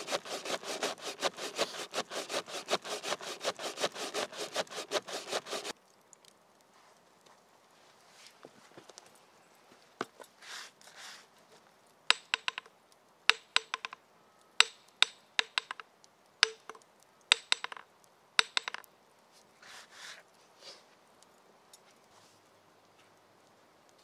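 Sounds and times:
hammer tapping on metal: 0:12.1 - 0:12.7, 0:13.3 - 0:14.0, 0:14.6 - 0:15.8, 0:16.4 - 0:17.8, 0:18.4 - 0:18.9.

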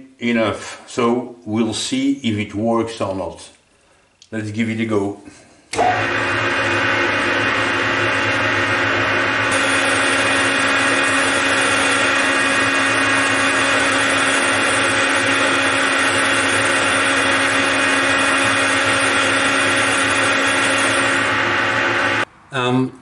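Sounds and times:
metal lathe cutting metal: 0:05.8 - 0:22.2.

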